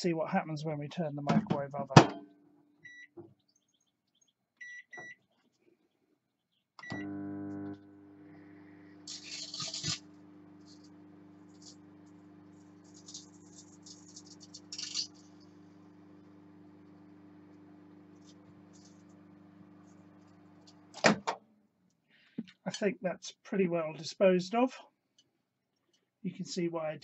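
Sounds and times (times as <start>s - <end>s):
microwave keypad beeping: 6.8s - 7.3s
microwave humming: 6.8s - 21.4s
disc crackling and sparking: 8.9s - 15.9s.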